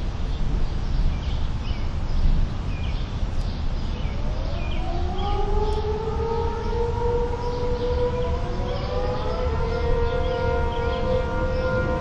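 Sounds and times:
warning sirens winding up: 4.4s - 12.0s.

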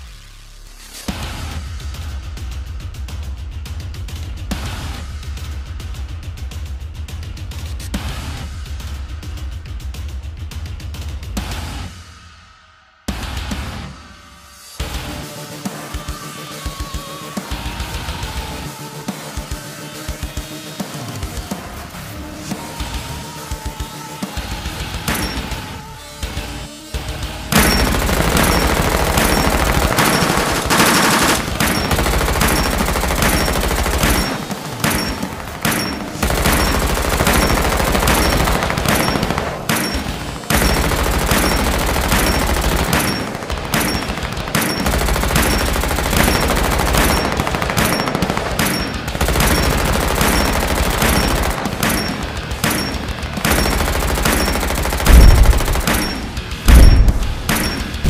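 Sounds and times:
machine-gun fire: 25.1s - 25.7s, 27.5s - 58.0s
heavy explosion boom: 55.1s - 55.9s, 56.7s - 57.6s.

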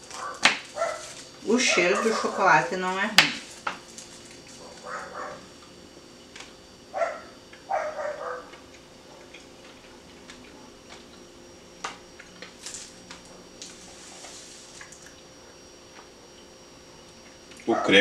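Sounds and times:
wrapper crinkling: 0.0s - 2.3s
dog bark: 0.2s - 2.5s, 4.7s - 5.4s, 7.0s - 8.6s, 17.7s - 18.0s.

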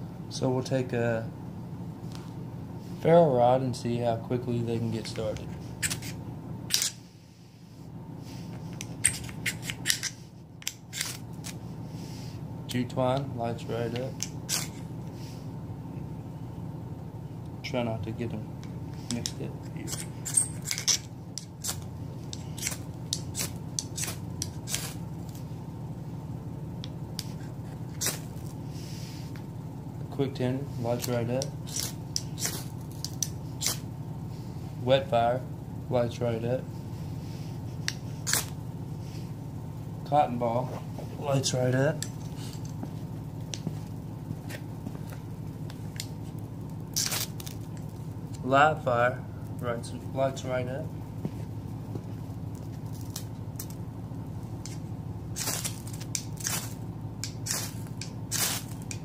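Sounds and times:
steady low hum: 0.0s - 59.0s
striker scraping ferrocerium rod: 5.1s - 7.0s, 8.7s - 11.6s, 14.0s - 14.9s, 19.0s - 25.4s, 31.0s - 33.9s, 37.8s - 38.6s, 55.4s - 59.0s.

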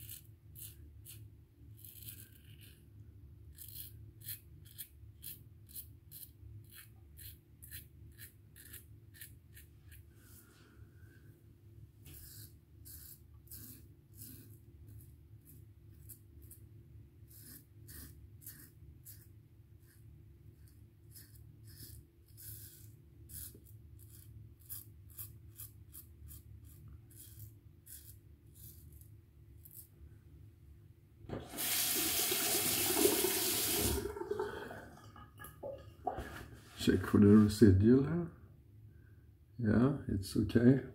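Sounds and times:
razor scraping stubble: 0.0s - 2.9s, 3.5s - 10.0s, 12.0s - 16.6s, 17.3s - 20.0s, 20.6s - 29.9s
tap running at sink: 31.3s - 36.2s.

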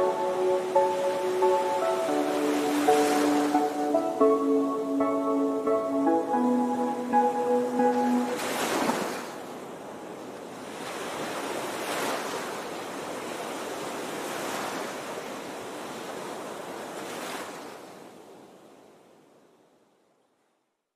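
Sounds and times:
water rushing: 0.0s - 13.5s.

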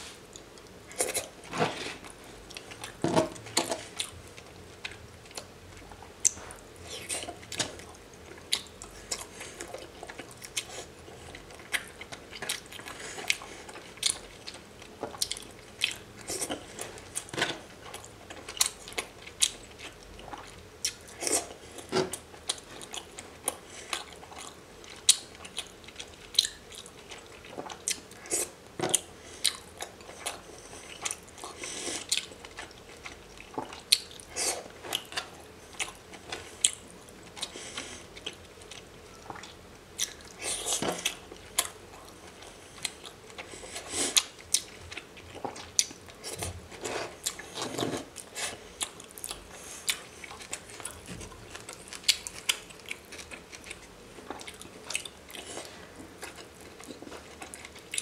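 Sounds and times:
wet chewing mouth sounds: 3.8s - 58.0s.

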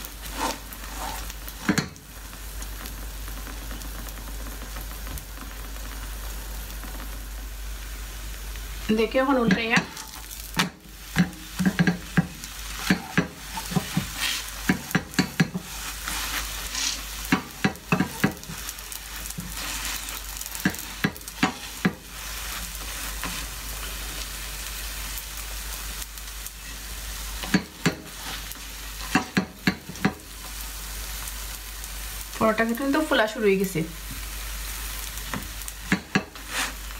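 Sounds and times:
bread sizzling in a frying pan: 0.0s - 36.9s
spatula tapping and scraping a pan: 0.2s - 2.0s, 9.4s - 24.0s, 27.4s - 30.6s, 35.3s - 36.8s.

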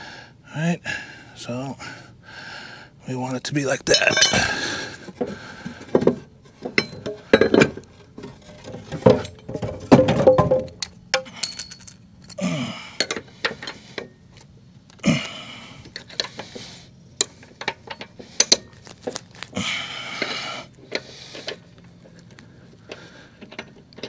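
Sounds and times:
metal clinks and taps: 10.5s - 12.4s.

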